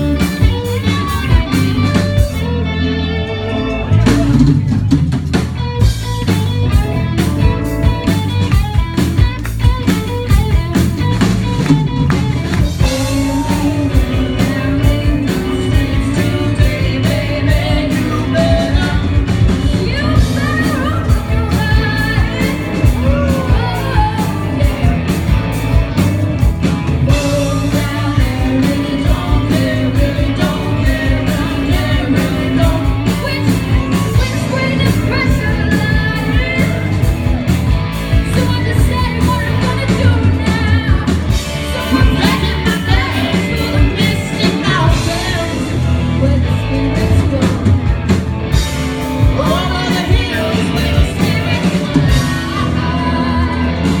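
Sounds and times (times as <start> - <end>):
rock band playing: 0.0 - 54.0
women singing: 12.6 - 25.4, 27.1 - 37.1, 38.2 - 47.7, 49.2 - 54.0.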